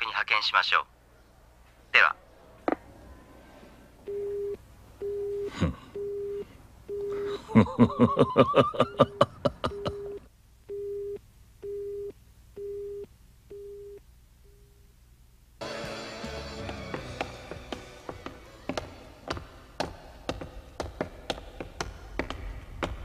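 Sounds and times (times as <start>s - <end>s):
telephone busy tone: 4.1s - 7.2s, 8.9s - 14.7s
man laughing loudly: 5.5s - 5.9s, 7.2s - 10.2s.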